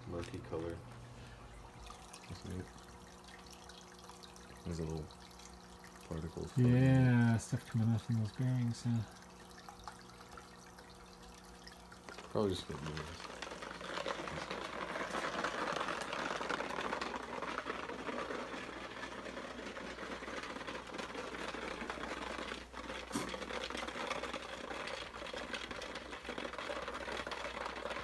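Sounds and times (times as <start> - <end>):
low steady hum: 0.0 - 28.0
bearings rattling in plastic bottle: 6.0 - 28.0.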